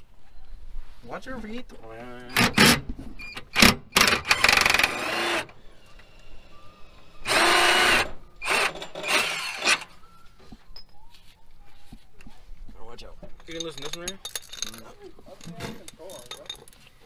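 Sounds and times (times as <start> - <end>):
impact driver bursts: 3.4 - 5.6, 7.2 - 9.9.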